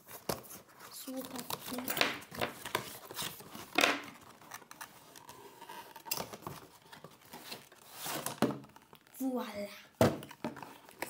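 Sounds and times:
cardboard box scraping and rustling: 2.7s - 8.6s.

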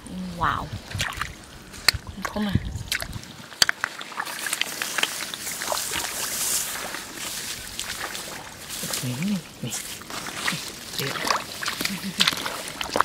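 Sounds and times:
shallow water splashing: 0.6s - 13.0s
rice stalks rustling and snapping: 2.8s - 13.0s.

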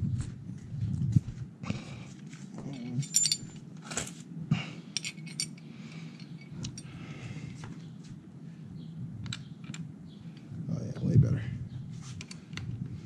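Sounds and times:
metal tools and keys clinking: 2.7s - 4.2s, 5.0s - 7.0s
ringing metallic clink: 3.0s - 3.6s.

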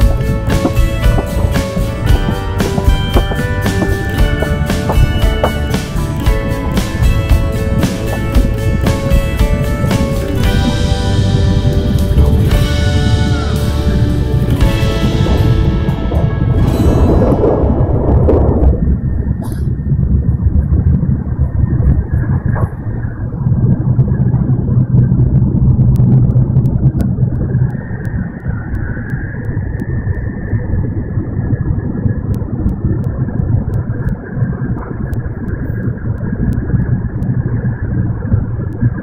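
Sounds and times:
train cabin rumble and hum: 0.0s - 27.7s.

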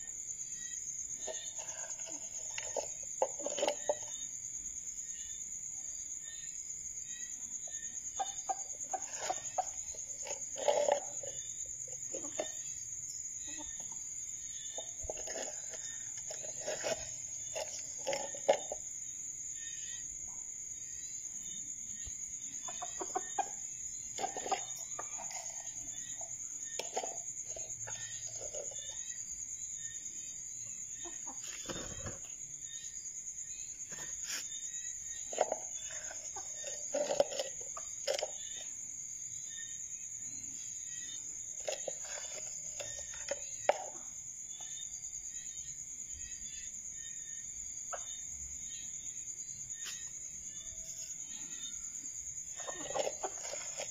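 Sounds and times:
junglefowl clucking: 22.6s - 23.6s.

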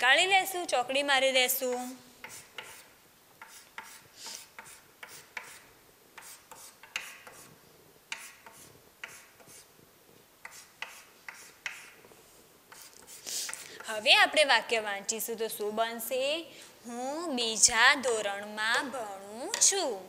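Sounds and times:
chalk scratching on chalkboard: 1.6s - 9.7s, 10.4s - 12.0s, 12.7s - 14.1s.

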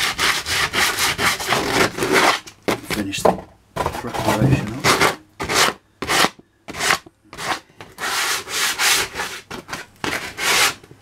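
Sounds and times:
sandpaper rubbing on rough wood: 4.2s - 9.5s, 10.1s - 10.8s.

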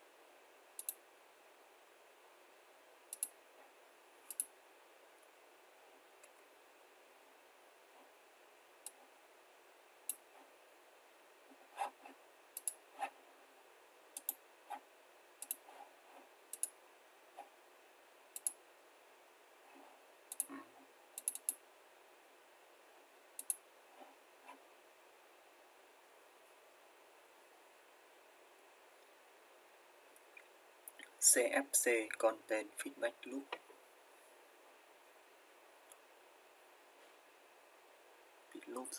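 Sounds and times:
faint steady hiss: 0.0s - 38.9s
computer mouse clicking: 0.8s - 1.0s, 3.1s - 3.4s, 4.3s - 4.5s, 11.8s - 13.2s, 14.2s - 14.8s, 15.4s - 15.8s, 16.5s - 16.8s, 18.3s - 18.6s, 20.3s - 20.6s, 21.2s - 21.6s, 23.4s - 23.6s.

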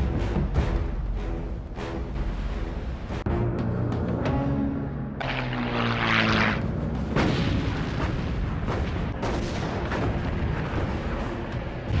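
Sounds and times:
propeller plane engine rushing past: 5.2s - 6.7s.

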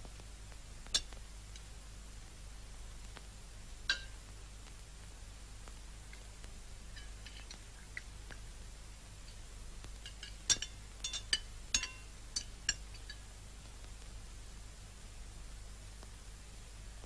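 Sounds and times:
cutlery clinking on plates: 10.1s - 12.5s.

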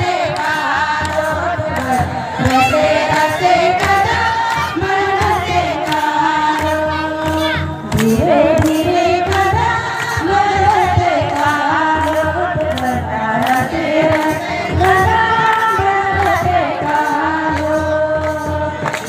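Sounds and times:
women singing a folk song: 0.0s - 19.0s.

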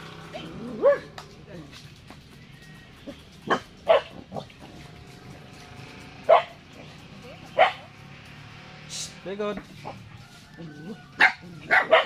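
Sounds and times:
dog barking: 0.4s - 1.2s, 3.4s - 4.5s, 6.3s - 6.6s, 7.5s - 7.9s, 11.0s - 12.0s.

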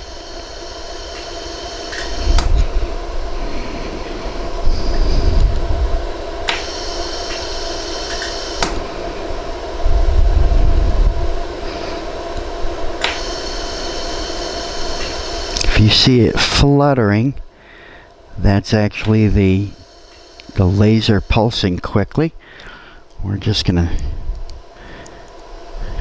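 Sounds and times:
high whine: 0.0s - 26.0s
machine hum: 0.0s - 26.0s
sharp clicks: 13.0s - 13.4s.

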